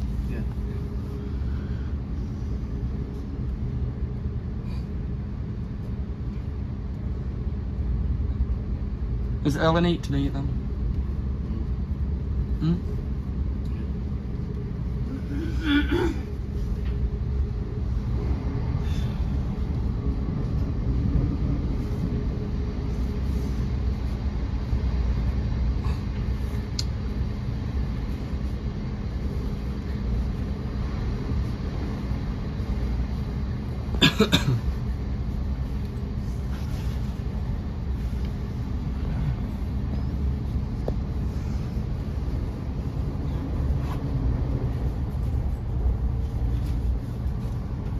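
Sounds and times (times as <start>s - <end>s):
train low rumble: 0.0s - 47.9s.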